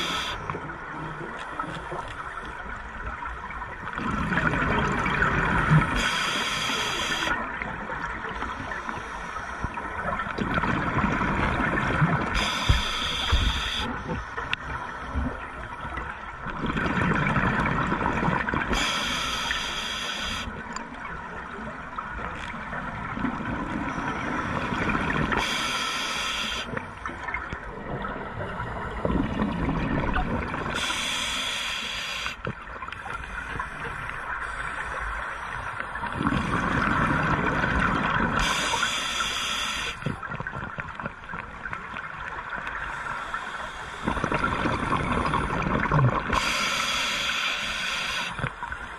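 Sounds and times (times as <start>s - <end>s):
scuba regulator inhalation hiss: 0.0s - 0.4s, 5.9s - 7.4s, 12.4s - 14.1s, 18.7s - 20.5s, 25.4s - 26.8s, 30.8s - 32.5s, 38.4s - 40.2s, 42.9s - 44.3s, 46.3s - 48.5s
exhaled bubbles gurgling: 0.0s - 19.4s, 20.3s - 25.7s, 26.6s - 31.5s, 35.6s - 48.9s.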